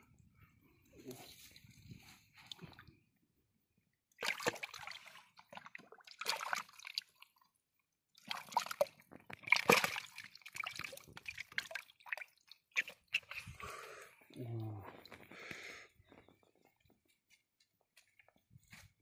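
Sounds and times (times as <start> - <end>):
wet squishing and sloshing: 4.2 - 7.5, 8.2 - 15.2.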